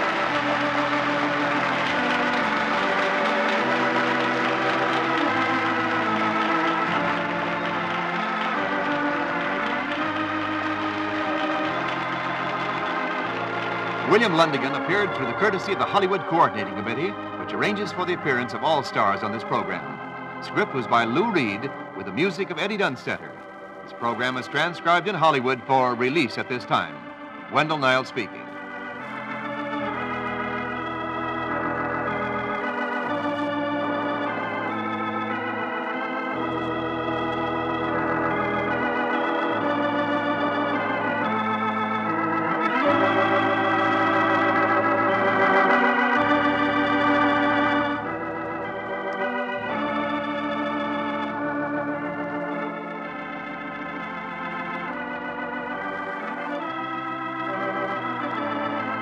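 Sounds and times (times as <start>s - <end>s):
organ chords: 0.0s - 59.0s.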